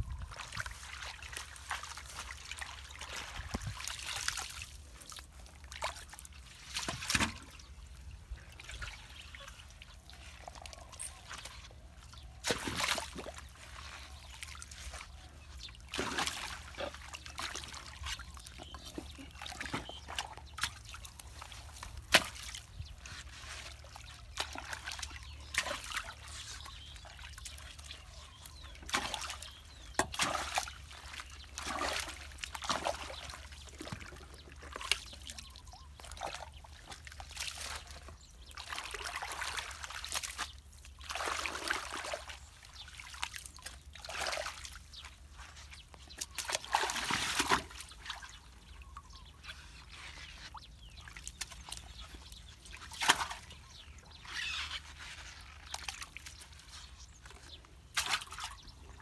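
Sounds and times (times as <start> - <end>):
floodwater sloshing and splashing: 0.0 - 59.0.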